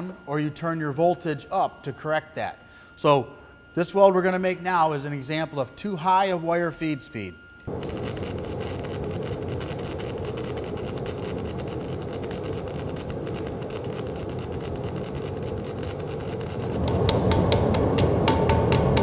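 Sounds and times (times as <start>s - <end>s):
welding arc crackling: 7.6s - 18.1s.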